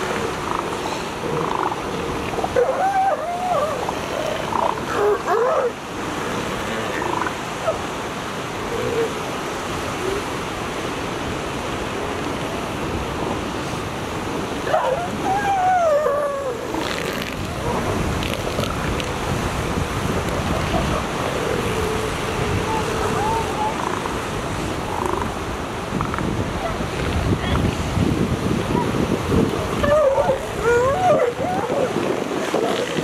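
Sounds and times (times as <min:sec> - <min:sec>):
elephant seals calling: 0:00.0 - 0:07.9, 0:14.6 - 0:19.1, 0:20.1 - 0:26.8, 0:29.7 - 0:33.0
steady surf: 0:00.0 - 0:33.0.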